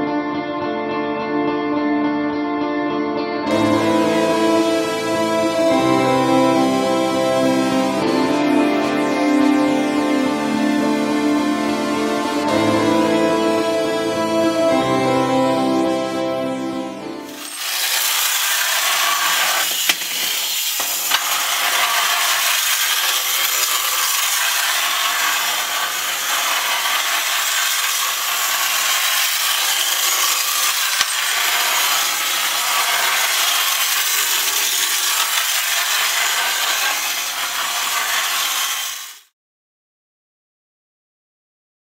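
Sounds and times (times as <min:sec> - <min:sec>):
clockwork toy motors whirring: 0:17.3 - 0:39.3.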